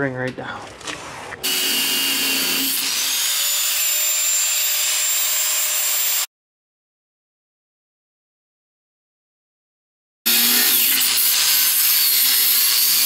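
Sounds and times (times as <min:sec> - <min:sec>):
angle grinder grinding steel: 0:01.4 - 0:06.3, 0:10.3 - 0:13.0.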